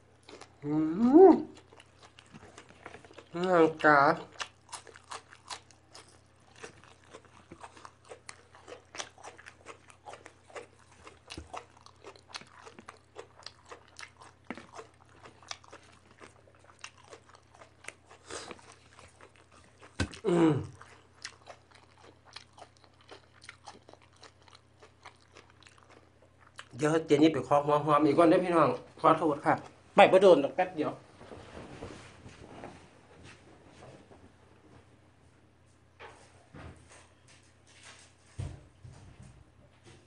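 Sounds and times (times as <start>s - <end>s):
chewing and crunching vegetables: 0.0s - 27.6s.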